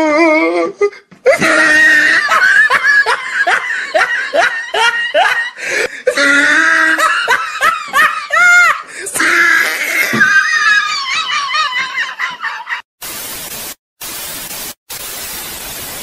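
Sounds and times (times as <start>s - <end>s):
hearty laughter: 1.3s - 9.0s, 10.0s - 12.9s.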